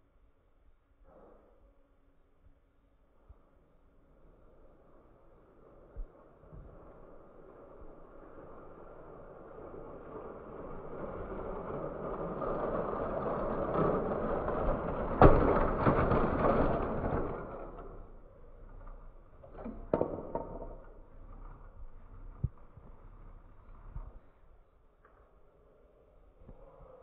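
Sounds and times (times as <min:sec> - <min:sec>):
toy train rolling on plastic track: 0:04.5 - 0:24.2
plastic cars clattering: 0:06.7 - 0:22.4
toy train crashing into wall: 0:12.6 - 0:18.8.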